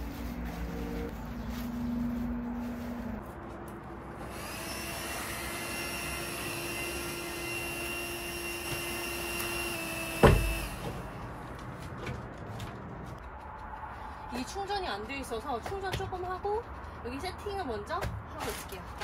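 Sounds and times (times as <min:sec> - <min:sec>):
electric air pump whining: 0:04.2 - 0:11.3
loud thump: 0:10.2 - 0:10.6.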